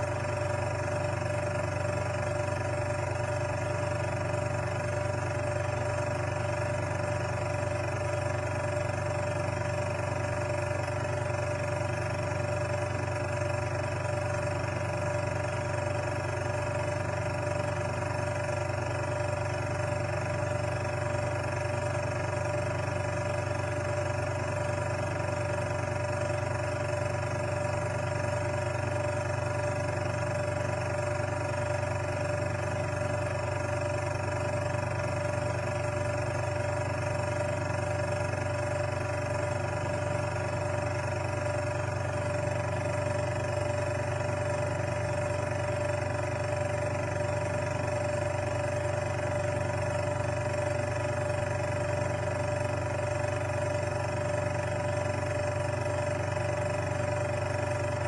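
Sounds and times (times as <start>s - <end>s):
machine hum: 0.0s - 58.0s.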